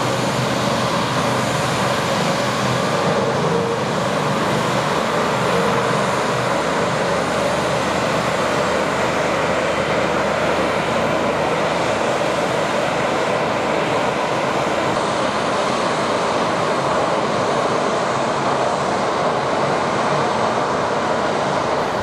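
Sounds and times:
jet engines at taxi power: 0.0s - 22.0s.

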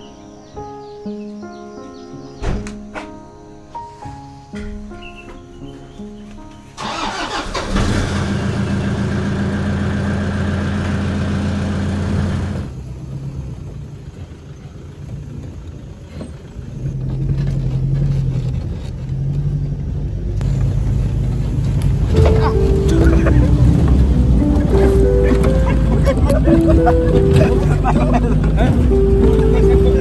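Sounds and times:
pickup truck engine: 6.8s - 30.0s.

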